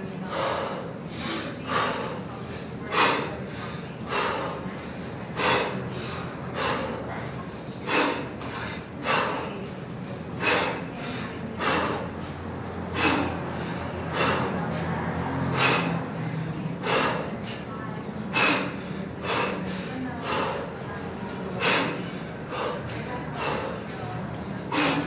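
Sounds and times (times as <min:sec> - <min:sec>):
man breathing sharply: 0:00.3 - 0:07.1, 0:07.8 - 0:09.6, 0:10.4 - 0:17.7, 0:18.3 - 0:20.8, 0:21.6 - 0:24.0, 0:24.6 - 0:25.0.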